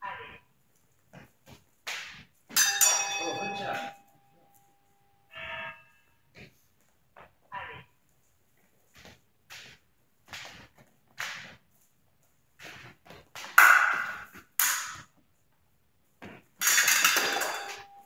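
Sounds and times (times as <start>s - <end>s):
fencers' footsteps stamping: 8.1s - 17.8s
blades clashing and scraping: 16.2s - 18.0s.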